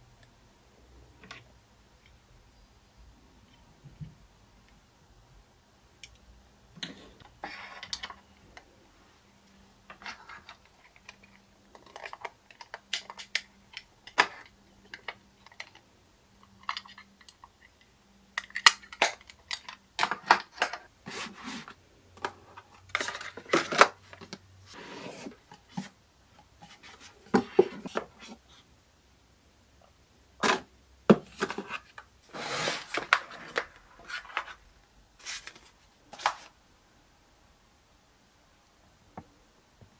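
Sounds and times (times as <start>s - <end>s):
plastic toys clicking and tapping: 9.9s - 15.8s
cardboard boxes sliding and rustling: 21.1s - 21.8s, 24.7s - 25.8s, 32.3s - 33.4s.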